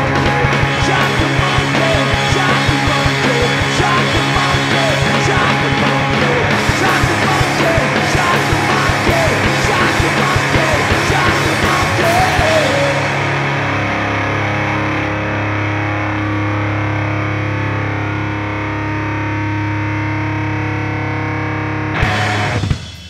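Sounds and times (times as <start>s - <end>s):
shouted lead vocal: 0.0s - 14.7s
drum kit: 0.0s - 15.0s, 22.0s - 23.0s
distorted electric guitar: 0.0s - 23.0s.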